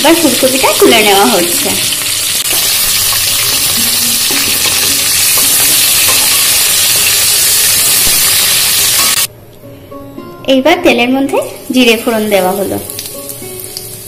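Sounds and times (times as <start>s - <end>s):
food sizzling in hot oil: 0.0s - 9.3s, 11.6s - 14.0s.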